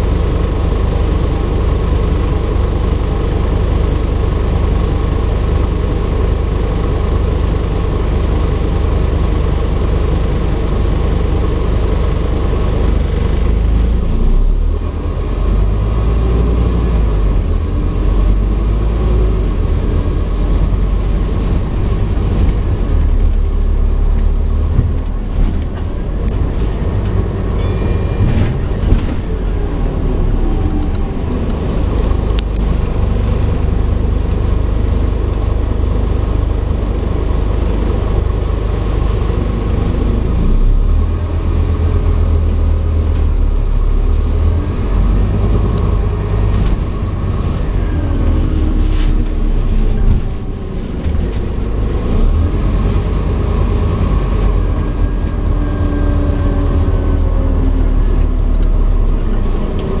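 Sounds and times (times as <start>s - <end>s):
diesel bus engine rumble: 0.0s - 60.0s
road noise: 0.0s - 60.0s.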